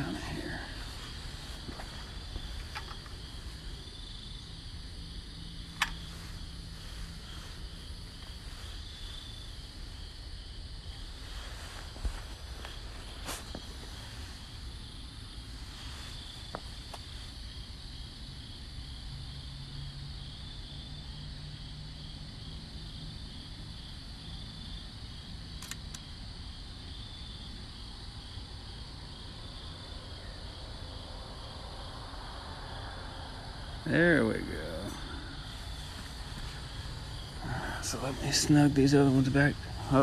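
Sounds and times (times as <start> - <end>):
crickets chirping: 0.0 - 40.0
sharp clicks: 25.6 - 26.1.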